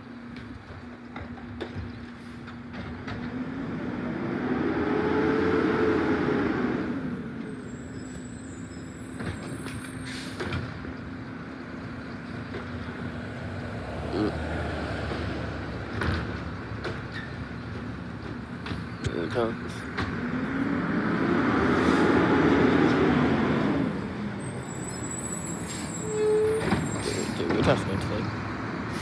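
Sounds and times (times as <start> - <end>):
garbage truck engine revving: 2.9 - 7.5, 19.1 - 24.8
hiss with high squeals: 24.5 - 27.4.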